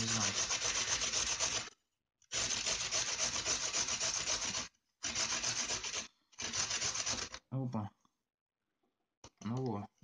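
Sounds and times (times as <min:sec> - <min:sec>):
carrot rasping on metal grater: 0:00.0 - 0:01.7, 0:02.4 - 0:07.4.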